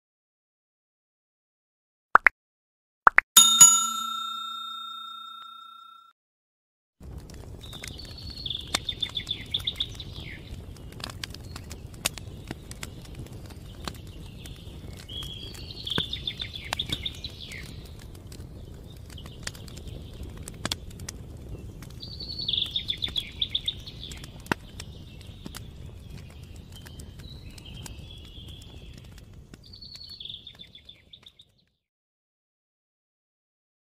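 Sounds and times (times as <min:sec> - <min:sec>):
campfire crackling and popping: 0:07.0 - 0:31.5.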